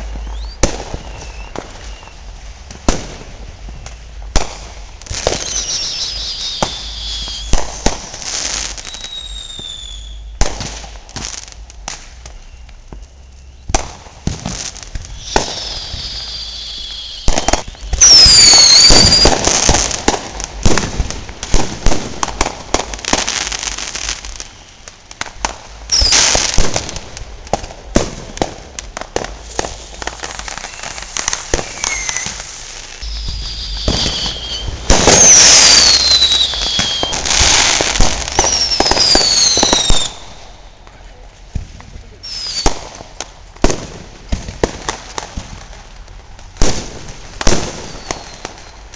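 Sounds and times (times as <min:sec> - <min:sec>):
firework whistles falling in pitch: 0:00.0 - 0:11.0, 0:12.0 - 0:20.9, 0:25.9 - 0:27.0, 0:29.6 - 0:40.8, 0:42.2 - 0:42.8, 0:47.4 - 0:48.9
fireworks bangs and crackles: 0:00.0 - 0:48.9.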